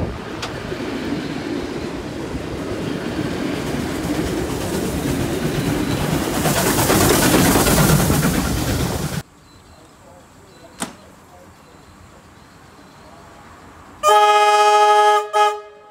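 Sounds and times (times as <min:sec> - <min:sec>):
steam locomotive hissing: 0:00.0 - 0:09.2
train wheels clattering on rails: 0:00.2 - 0:09.2.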